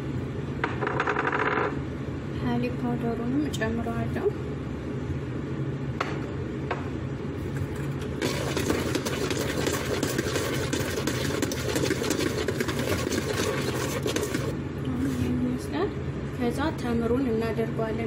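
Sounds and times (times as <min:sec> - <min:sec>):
electric hand mixer beating batter: 0:08.1 - 0:14.6.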